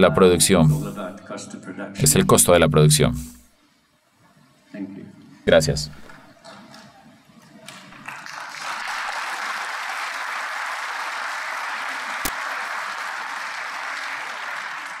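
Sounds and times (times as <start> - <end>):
audience applauding: 6.3 - 15.0.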